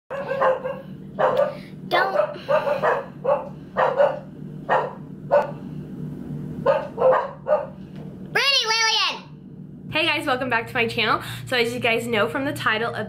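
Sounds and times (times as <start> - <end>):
dog barking: 0.1 - 5.6, 6.6 - 7.8.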